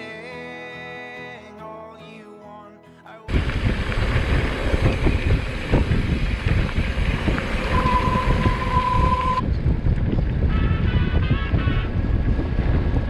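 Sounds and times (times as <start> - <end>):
bike rattling over rough ground: 3.3 - 10.5
wind buffeting microphone: 3.3 - 13.0
brake squeal: 7.4 - 9.4.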